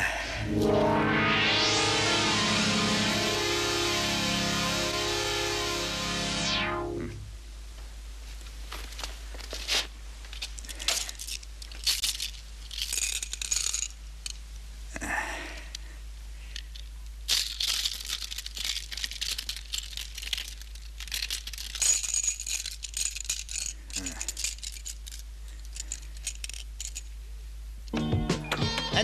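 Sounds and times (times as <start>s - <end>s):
crinkly rustling: 8.2s - 14.7s, 16.4s - 27.2s
diamonds clicking and rattling: 10.3s - 14.6s, 16.5s - 27.2s.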